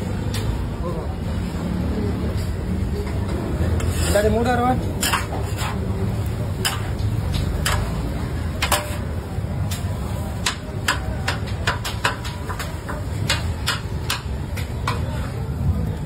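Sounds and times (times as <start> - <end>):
utensils knocking on steel griddle: 4.9 - 5.8, 6.5 - 9.8, 10.4 - 15.2.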